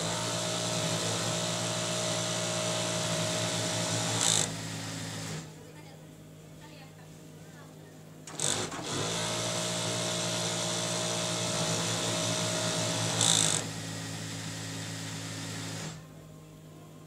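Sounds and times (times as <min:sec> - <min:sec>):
industrial sewing machine stitching: 0:00.0 - 0:05.5, 0:08.3 - 0:16.0
low machine hum: 0:13.0 - 0:17.0.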